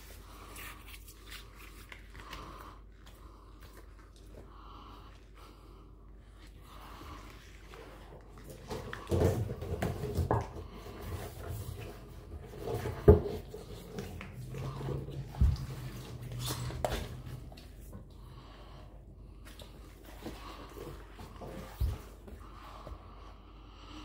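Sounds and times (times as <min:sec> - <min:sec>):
low steady hum: 0:00.0 - 0:24.0
latex suit rubbing and creaking: 0:11.3 - 0:17.9.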